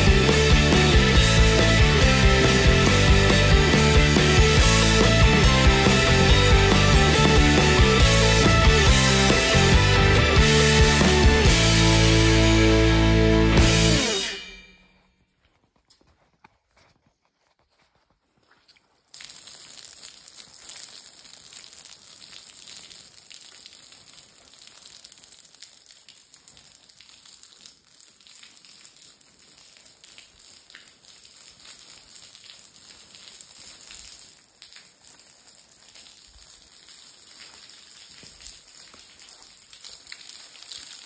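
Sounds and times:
hose water spraying on concrete: 0:19.0 - 0:41.0.

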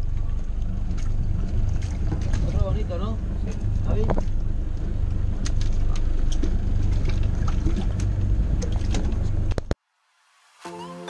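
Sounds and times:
boat engine rumble: 0:00.0 - 0:09.8
wind: 0:00.0 - 0:11.0
music: 0:10.4 - 0:11.0.

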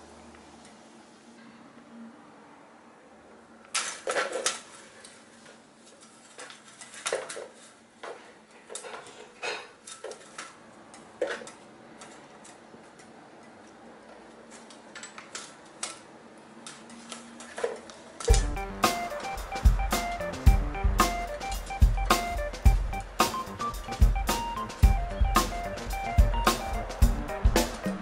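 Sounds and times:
music with drums: 0:18.3 - 0:28.0.

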